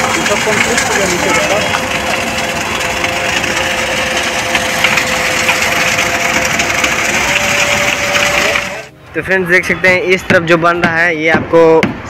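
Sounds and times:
wet concrete pouring down chute: 0.0s - 8.9s
concrete mixer engine hum: 0.0s - 10.1s.

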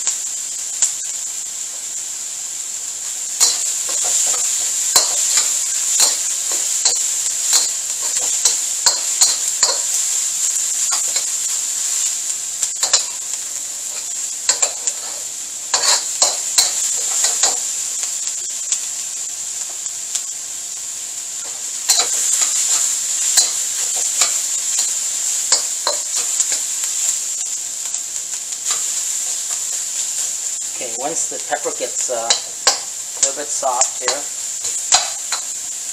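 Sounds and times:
vegetables sizzling in a wok: 0.0s - 35.9s
spatula scraping and clacking on wok: 3.3s - 18.1s, 21.4s - 26.9s, 30.9s - 35.7s.

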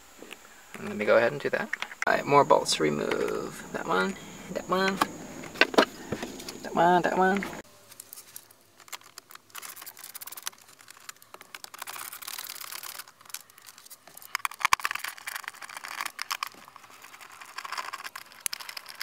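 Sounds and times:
screwdriver clicking and rattling: 8.0s - 19.0s.

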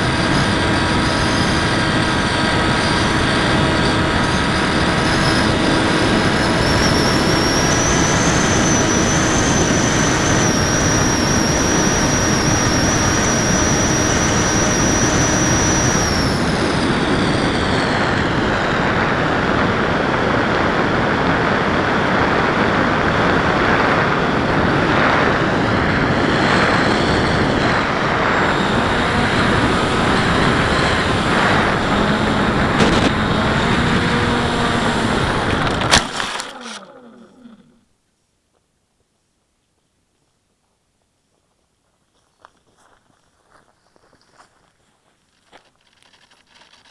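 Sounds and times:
model plane motor whining: 0.0s - 37.8s, 45.5s - 46.9s
wind rushing: 16.2s - 36.2s.

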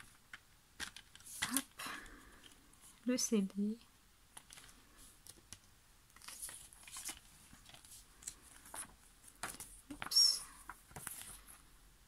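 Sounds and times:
paper booklet rustling: 0.0s - 3.0s, 4.3s - 11.7s.

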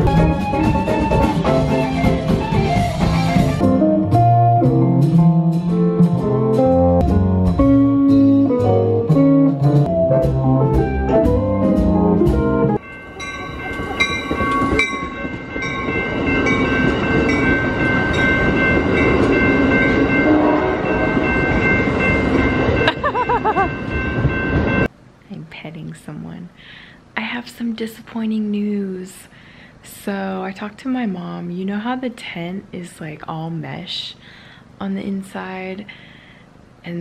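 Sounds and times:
plucked guitar music: 0.0s - 14.9s.

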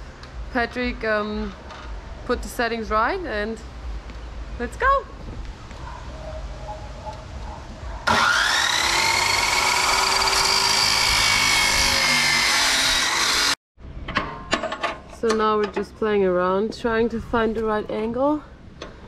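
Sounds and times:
cut-off saw grinding steel: 8.0s - 13.6s.

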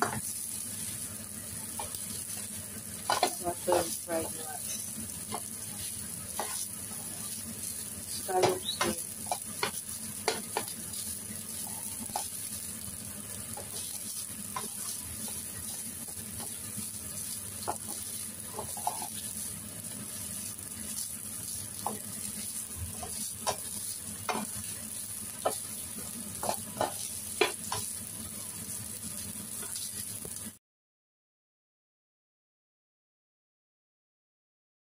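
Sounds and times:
rice sizzling in a pan: 0.0s - 30.6s
spatula scraping a pan: 3.0s - 10.7s, 13.5s - 19.5s, 20.1s - 28.0s.

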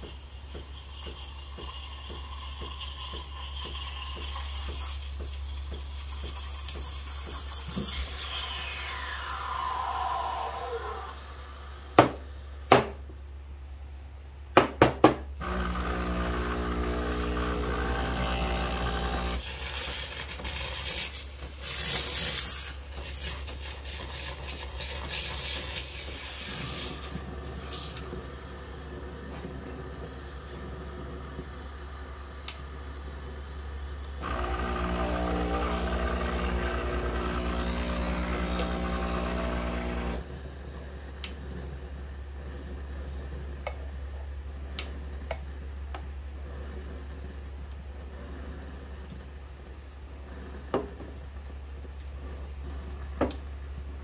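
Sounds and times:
steam wand hissing: 6.6s - 12.7s, 20.8s - 28.8s
espresso machine hum: 15.4s - 19.8s, 34.2s - 40.3s.

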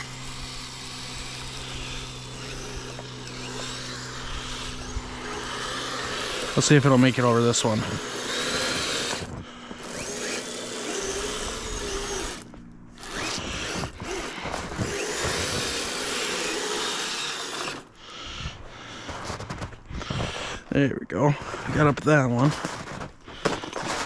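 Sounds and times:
toy electric motor whining: 0.0s - 20.7s.

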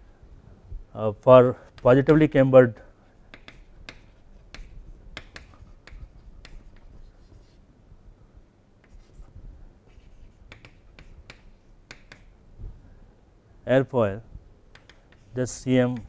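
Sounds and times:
chalk tapping and scratching on board: 1.8s - 2.0s, 3.3s - 7.6s, 8.8s - 9.3s, 9.9s - 12.4s, 14.7s - 16.0s.

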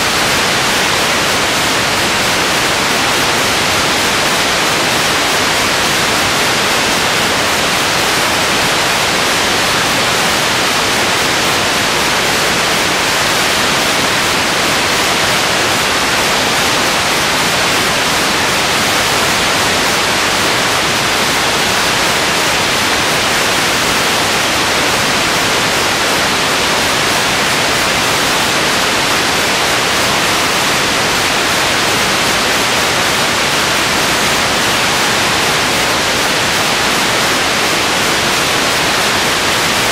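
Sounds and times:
loud static hiss: 0.0s - 39.9s.

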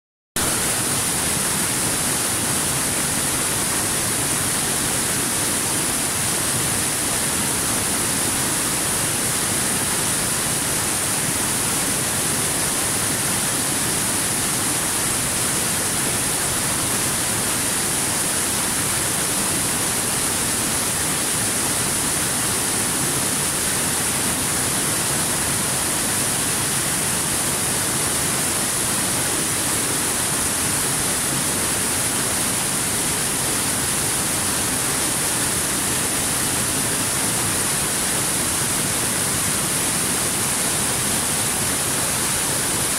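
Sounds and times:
waterfall rushing over rocks: 0.4s - 42.9s.

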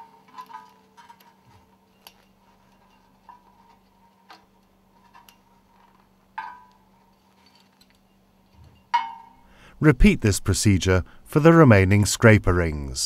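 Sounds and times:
metallic clicks and clinks: 6.7s - 9.2s.

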